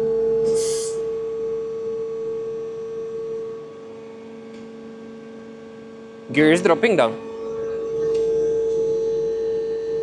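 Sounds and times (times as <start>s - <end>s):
high-pitched hydraulic hum: 0.0s - 4.8s, 5.5s - 10.0s
short hiss: 0.4s - 1.0s.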